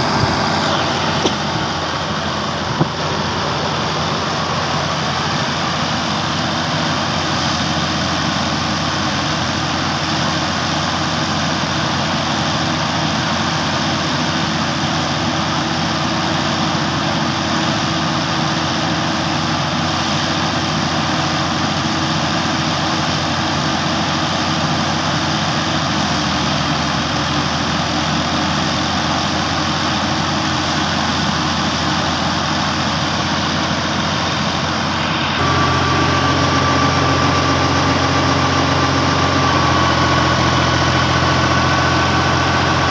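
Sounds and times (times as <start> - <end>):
thresher running: 0.0 - 10.3, 29.8 - 42.9
tractor diesel engine running: 0.0 - 42.9.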